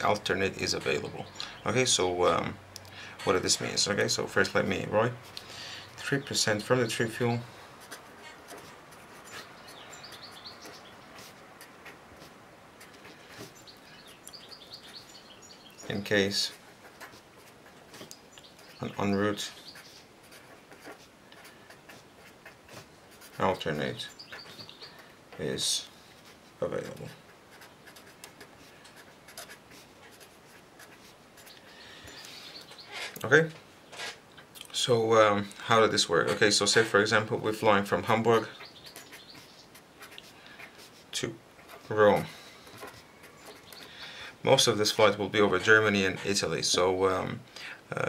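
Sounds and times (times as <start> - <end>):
marker squeaking on paper: 6.1 - 33.2, 33.9 - 34.2, 36.2 - 44.2.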